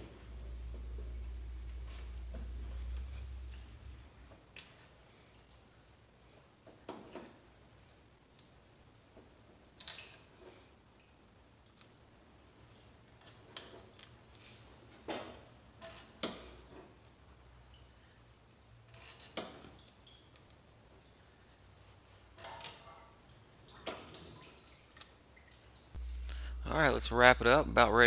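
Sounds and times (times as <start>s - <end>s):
steel bolts clinking: 15.8s - 16.5s.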